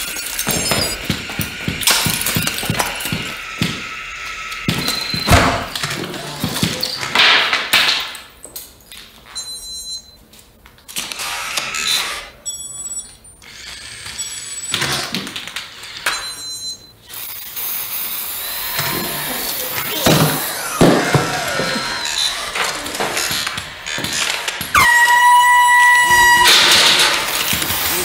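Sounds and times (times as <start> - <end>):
robot motors whirring: 0.0 - 7.0, 17.1 - 28.0
high electronic chirps: 24.7 - 28.0.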